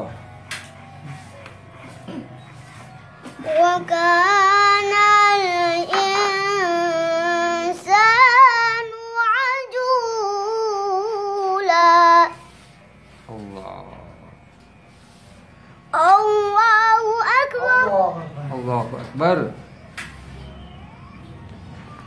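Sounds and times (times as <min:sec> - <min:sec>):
boy chanting recitation: 0:03.4 - 0:12.5, 0:15.9 - 0:18.2.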